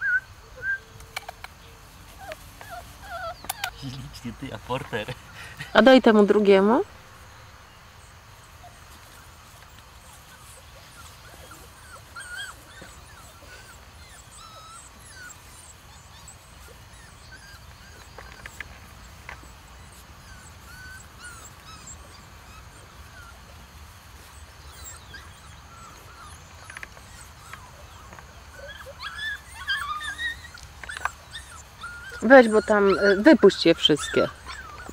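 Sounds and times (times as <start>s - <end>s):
puppies whimpering and whining: 0.0s - 5.9s, 6.9s - 34.9s.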